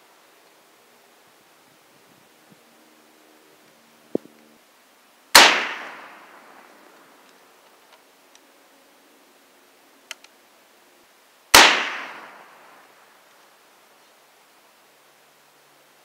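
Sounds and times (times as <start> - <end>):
rifle shots with echo: 5.3 - 6.4, 11.5 - 12.8
faint clicks: 10.0 - 10.4.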